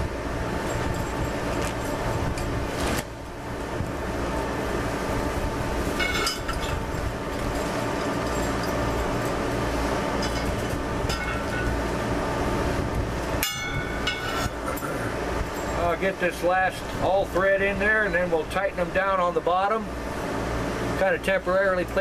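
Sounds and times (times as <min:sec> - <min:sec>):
low steady rumble: 0:00.0 - 0:22.0
metal rods clinking on wheel rim: 0:06.0 - 0:09.4, 0:10.2 - 0:11.8, 0:13.4 - 0:14.8.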